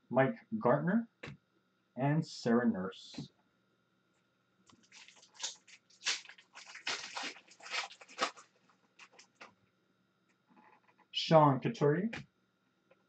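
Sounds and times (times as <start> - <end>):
card pack wrapper crinkling and tearing: 4.7 - 9.5.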